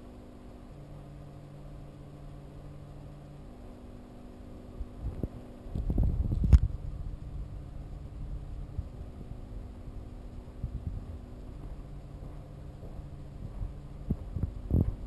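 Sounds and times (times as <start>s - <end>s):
aquarium equipment hum and hiss: 0.0s - 15.0s
low thumps and rumbles: 5.0s - 6.9s, 10.6s - 15.0s.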